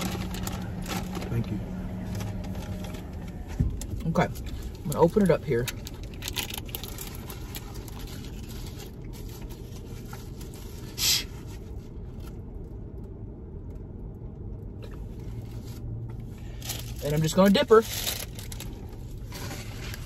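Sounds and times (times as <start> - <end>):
food packaging rustling: 0.0 - 3.1, 5.5 - 11.0, 17.6 - 20.0
car interior hum: 0.0 - 20.0.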